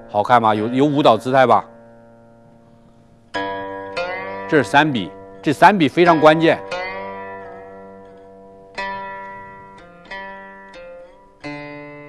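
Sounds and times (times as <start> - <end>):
plucked string notes: 0.0 - 12.0.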